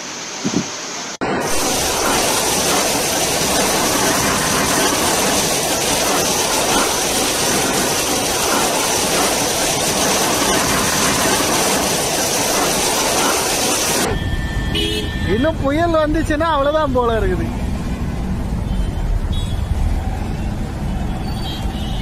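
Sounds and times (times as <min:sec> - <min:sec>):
strong wind through palm tree: 0:01.4 - 0:14.1.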